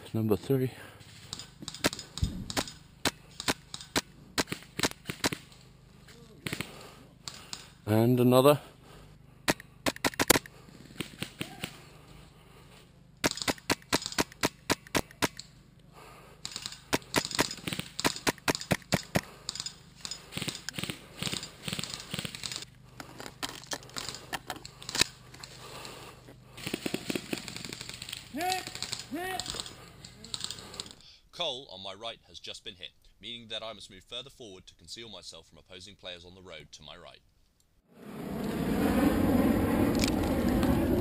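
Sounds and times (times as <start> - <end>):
airsoft rifle shots: 1.3 - 5.5, 6.4 - 7.7, 9.4 - 11.8, 13.2 - 15.5, 16.4 - 22.6, 26.6 - 30.7.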